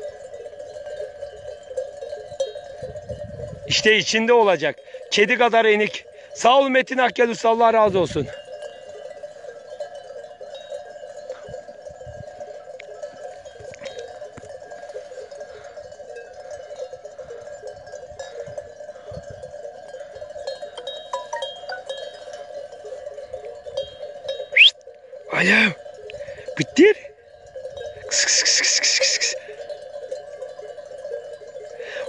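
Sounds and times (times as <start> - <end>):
animal bells clanking: 0.0 - 32.0.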